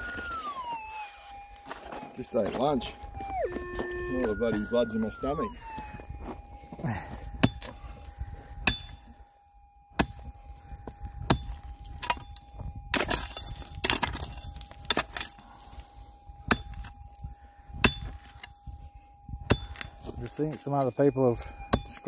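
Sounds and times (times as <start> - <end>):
pick striking rocky ground: 5.7 - 9.2, 9.9 - 15.8, 16.4 - 22.0.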